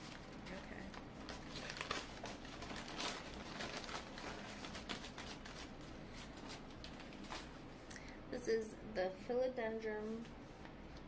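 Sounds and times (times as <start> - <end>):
paper rustling and crinkling: 0.0 - 7.6.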